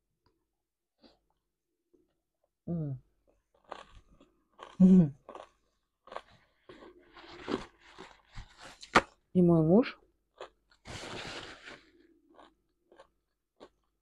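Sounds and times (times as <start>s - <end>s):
chewing and crunching food: 3.2s - 9.2s, 10.3s - 14.0s.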